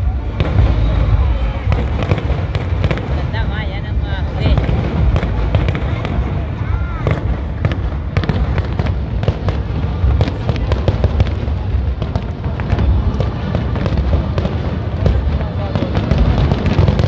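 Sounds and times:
continuous low rumble: 0.0 - 17.0
fireworks bursting: 0.0 - 17.0.

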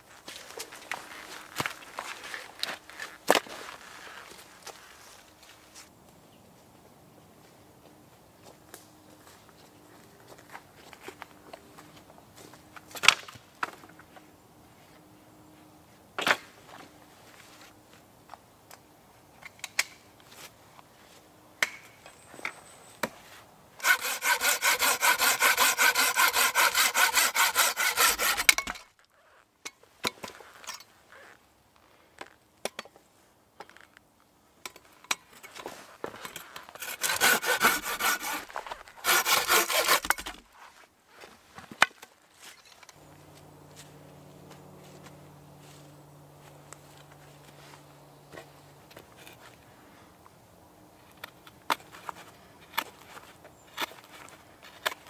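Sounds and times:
hand saw cutting wood: 23.8 - 28.9, 36.3 - 40.4.

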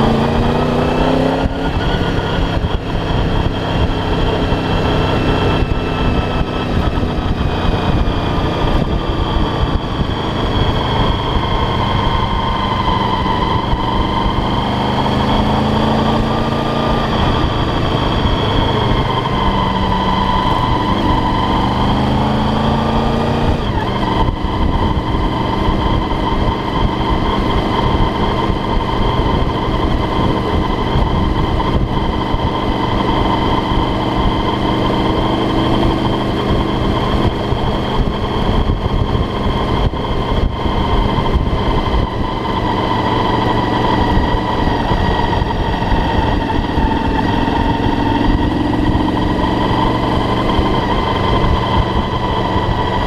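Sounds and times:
motorcycle engine running: 0.0 - 53.0
wind on microphone: 0.0 - 53.0.

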